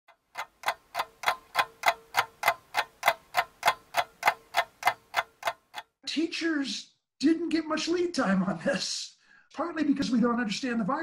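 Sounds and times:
sharp ticks: 0.1s - 5.9s.

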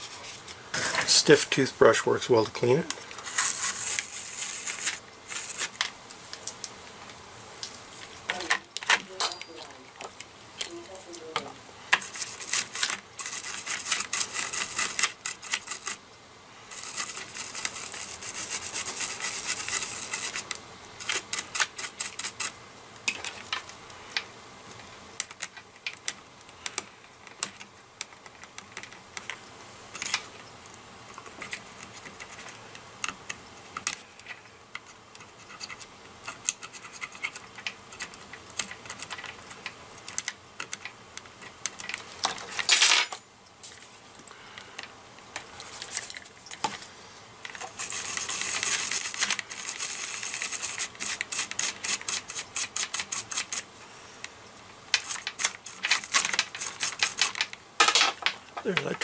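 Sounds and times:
metal pick scraping solder: 8.0s - 16.0s, 16.7s - 24.2s, 31.1s - 42.2s
toothbrush scrubbing circuit board: 12.0s - 16.0s, 16.7s - 22.6s, 47.6s - 53.7s, 55.0s - 57.2s.

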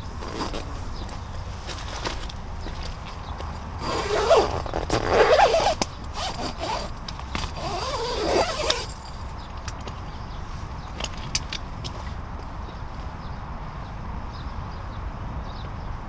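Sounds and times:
zipper being pulled: 3.8s - 9.0s.

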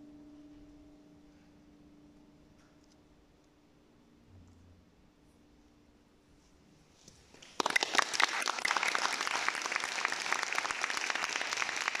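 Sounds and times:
audience applause: 7.4s - 12.0s.

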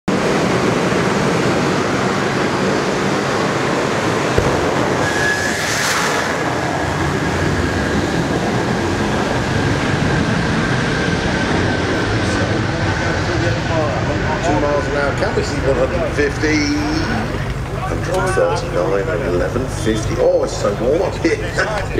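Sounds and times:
thin steady whistle: 5.0s - 6.1s.

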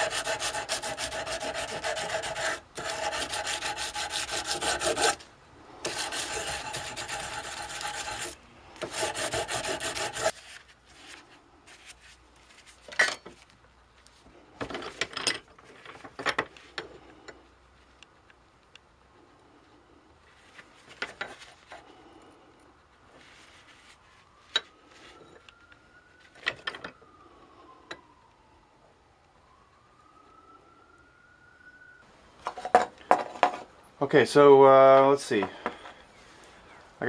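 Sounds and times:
metal file rasping on steel: 0.0s - 5.2s, 5.8s - 10.4s.

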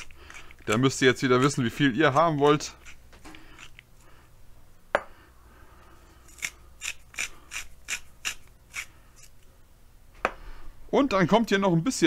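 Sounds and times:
spice mill grinding: 0.0s - 4.0s, 6.2s - 9.4s.

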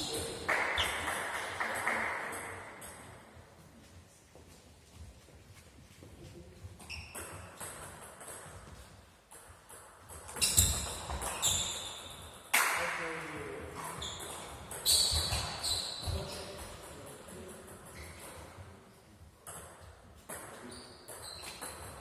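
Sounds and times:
table tennis ball bouncing: 0.0s - 3.2s, 6.9s - 12.9s, 19.4s - 22.0s.

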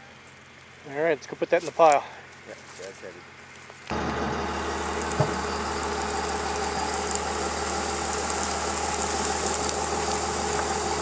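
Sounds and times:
diesel engine idling: 3.9s - 11.0s.

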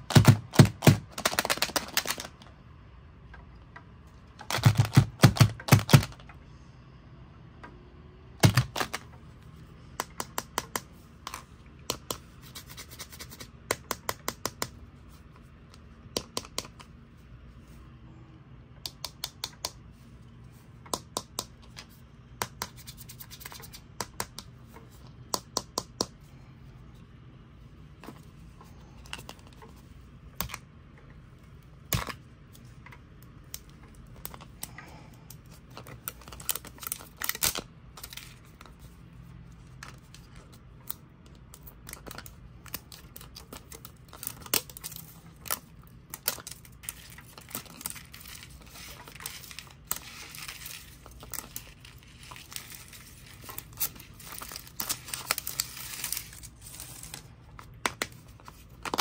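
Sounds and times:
plastic wrapper crinkling and tearing: 0.2s - 2.4s, 35.7s - 38.7s, 40.0s - 59.0s.

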